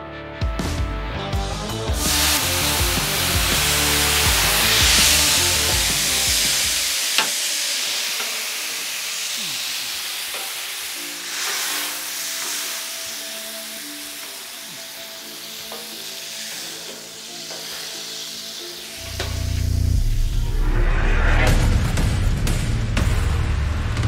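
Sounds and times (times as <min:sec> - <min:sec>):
sauce sizzling on a griddle: 0:01.9 - 0:20.0
quiet background music: 0:10.6 - 0:21.4.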